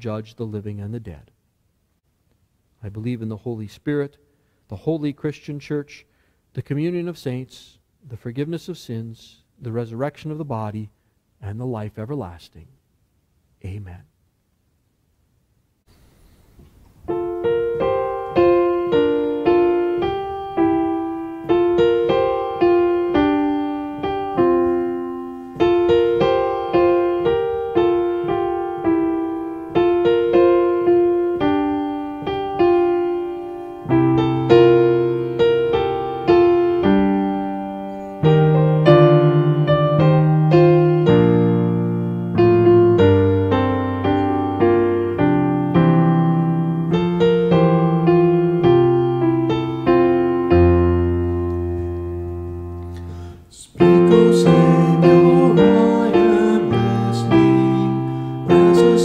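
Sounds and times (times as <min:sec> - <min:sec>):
piano playing slow hymn: 0:16.3 - 0:59.0.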